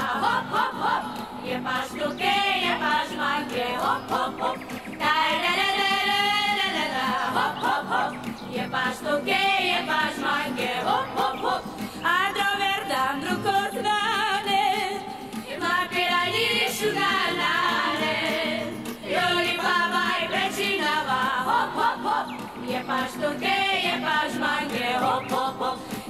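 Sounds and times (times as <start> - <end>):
women singing in chorus: 0.0 - 26.0.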